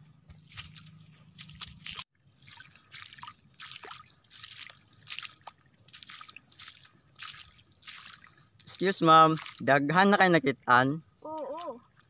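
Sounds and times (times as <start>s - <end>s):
footsteps splashing through water: 0.2s - 10.0s
water dripping: 1.4s - 9.6s.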